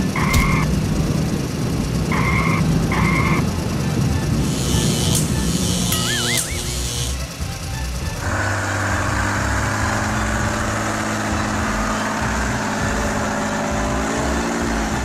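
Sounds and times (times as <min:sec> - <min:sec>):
truck engine rumble: 0:00.0 - 0:15.0.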